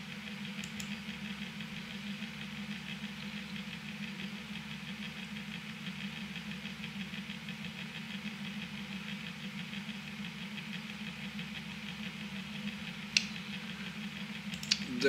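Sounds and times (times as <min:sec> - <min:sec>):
small motor humming: 0:00.0 - 0:15.0
sharp click: 0:00.6 - 0:00.9, 0:14.5 - 0:14.9.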